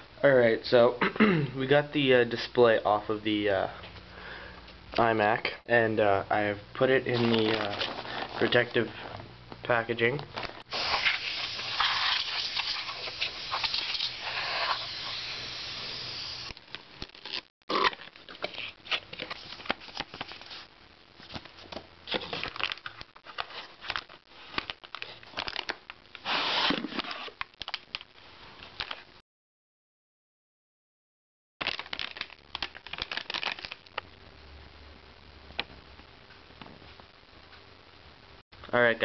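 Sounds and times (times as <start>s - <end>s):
packaging crinkling and rustling: 7.1s - 9.2s, 10.2s - 14.2s, 16.6s - 29.1s, 31.6s - 34.1s.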